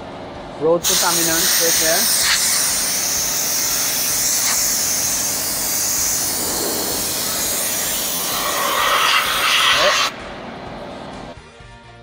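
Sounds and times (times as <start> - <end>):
air blow gun hissing: 0.8 - 10.2.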